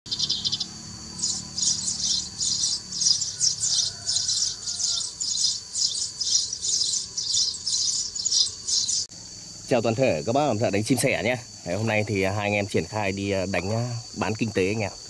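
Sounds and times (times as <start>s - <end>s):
sparrows chirping: 0.1s - 9.6s.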